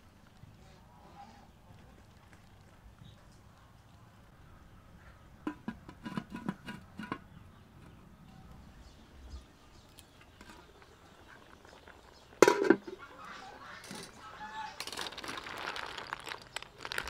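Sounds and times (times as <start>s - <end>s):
pot lid clinking on pot: 12.4s - 12.9s.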